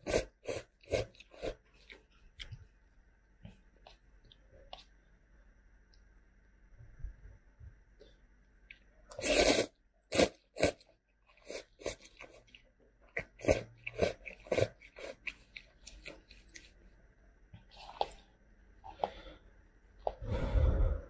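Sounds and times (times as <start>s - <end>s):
person slurping noodles: 0.0s - 1.6s, 9.1s - 10.8s, 13.2s - 15.3s
wet chewing sounds: 10.2s - 16.8s.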